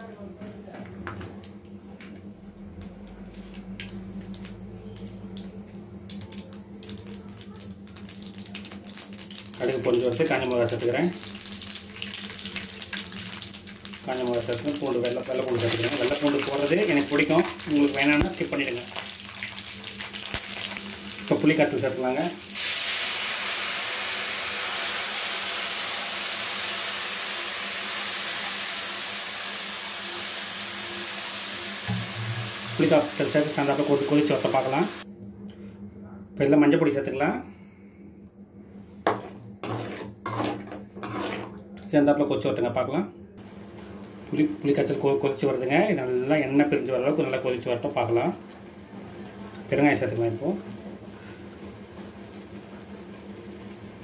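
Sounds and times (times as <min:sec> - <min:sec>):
steady low hum: 0:00.0 - 0:22.5, 0:31.8 - 0:54.0
hot oil sizzling and crackling: 0:06.1 - 0:35.1, 0:39.1 - 0:41.5.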